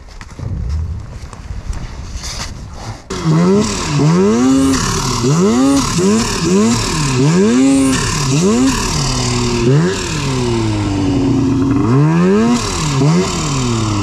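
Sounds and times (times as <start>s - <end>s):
snowmobile engine revving: 3.1s - 14.0s.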